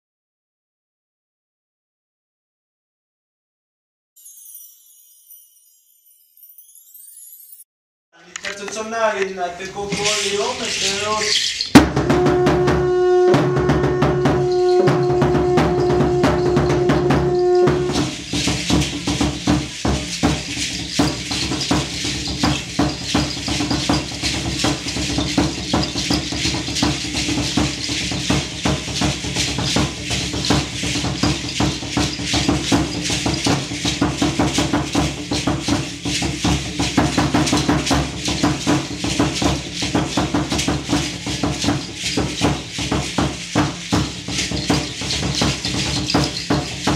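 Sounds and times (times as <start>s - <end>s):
rhythmic rattling and drumming: 8.5s - 46.9s
conch shell trumpet note: 12.0s - 18.2s.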